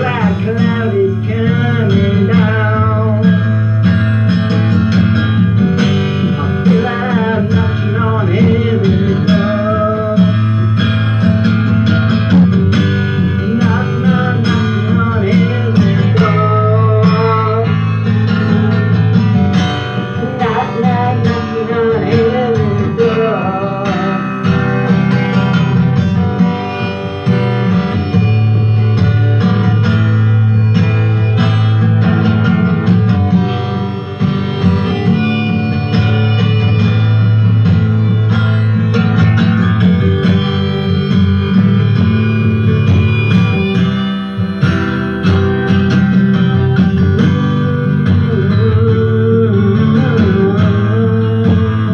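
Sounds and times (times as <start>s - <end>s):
acoustic guitar strumming: 0.0s - 51.9s
harmonica melody: 0.0s - 51.9s.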